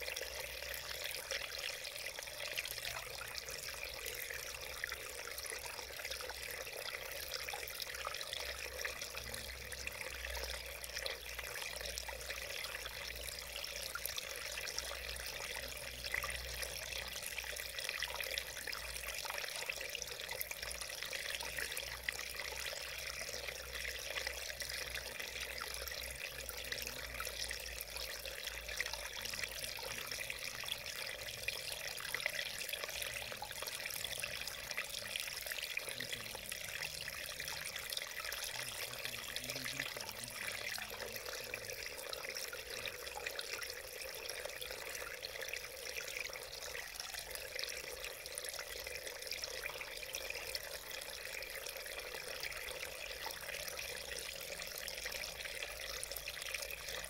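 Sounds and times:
stream flowing over stones: 0:00.0 - 0:57.0.

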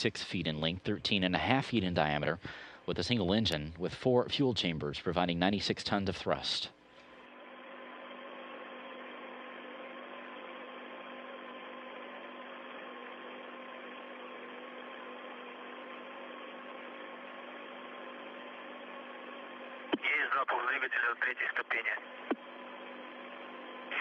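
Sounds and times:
faint hum and whine: 0:00.0 - 0:24.0
radio hiss: 0:19.4 - 0:24.0.

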